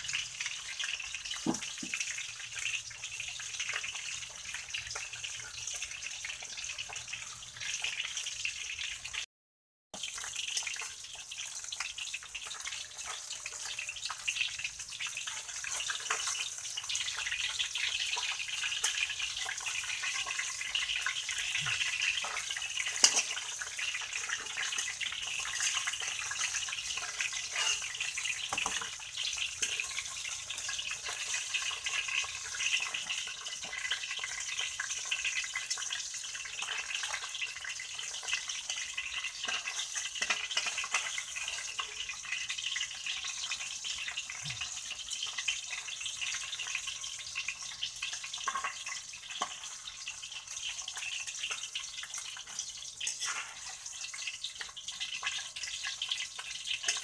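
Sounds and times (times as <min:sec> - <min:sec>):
fish sizzling in hot oil: 0:00.0 - 0:09.3, 0:10.0 - 0:57.0
metal spatula scraping wok: 0:18.7 - 0:35.2, 0:38.0 - 0:42.1, 0:51.5 - 0:54.7.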